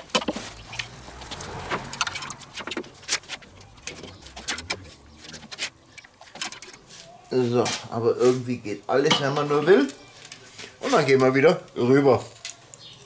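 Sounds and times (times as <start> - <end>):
metal grill tongs clicking: 12.3 - 13.0.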